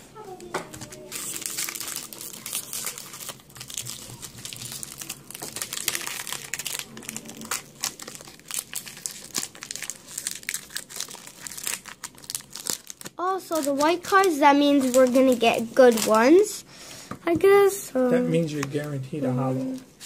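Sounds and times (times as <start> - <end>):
foil wrapper crinkling: 0.7 - 16.4.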